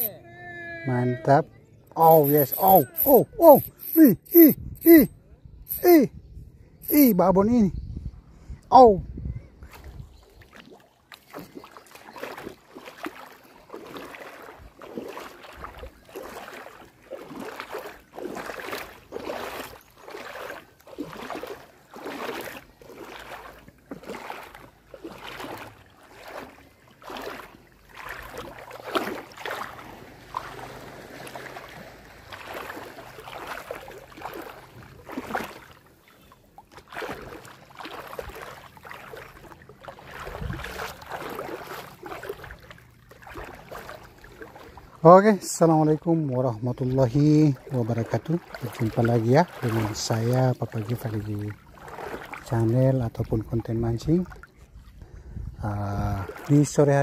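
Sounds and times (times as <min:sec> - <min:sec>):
small waves lapping at shoreline: 0:00.0 - 0:05.0, 0:08.5 - 0:57.0.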